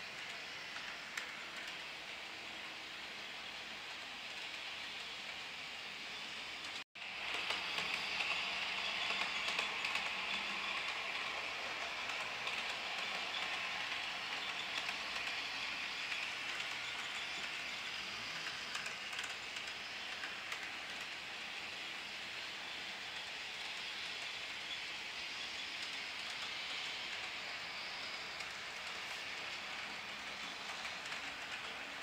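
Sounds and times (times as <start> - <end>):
model train rattling on rails: 0.0 - 32.0.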